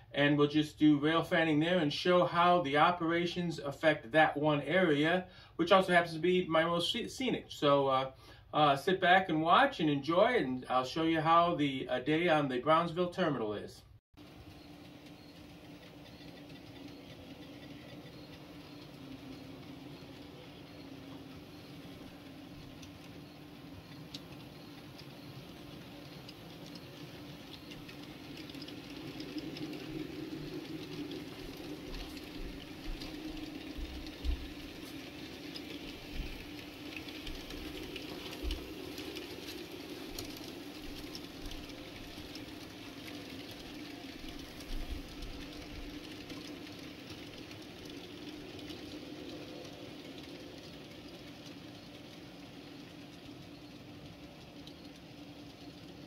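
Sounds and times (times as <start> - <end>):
model train motor hum: 14.2 - 56.0
wheel clatter: 14.2 - 56.0
wheels clicking over rail joints: 14.2 - 56.0.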